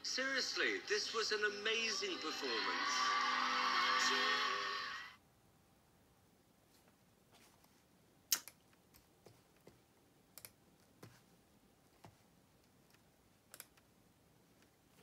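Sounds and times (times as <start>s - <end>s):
faint clicks and taps: 6.7s - 11.3s, 11.9s - 13.9s.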